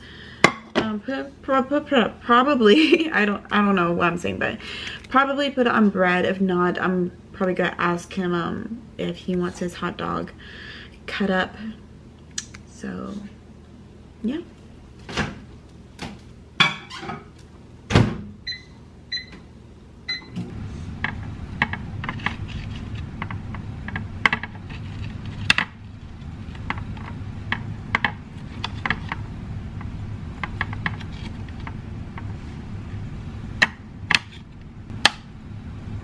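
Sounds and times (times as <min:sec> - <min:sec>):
microwave humming: 0:10.0 - 0:36.0
keypad beeps: 0:18.5 - 0:19.4, 0:20.1 - 0:20.4.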